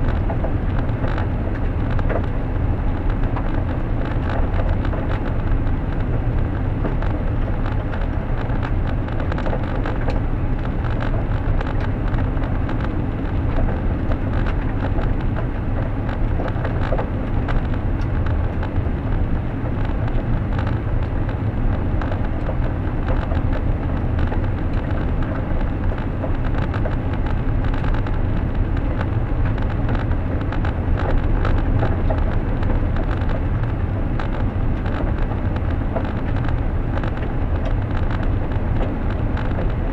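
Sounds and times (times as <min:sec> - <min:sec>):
road and tyre rumble: 0:00.0 - 0:39.9.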